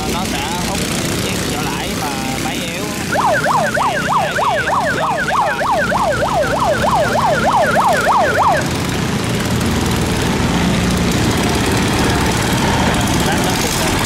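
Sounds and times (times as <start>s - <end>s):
boat engines: 0.0s - 14.0s
electronic siren yelping: 2.8s - 8.8s.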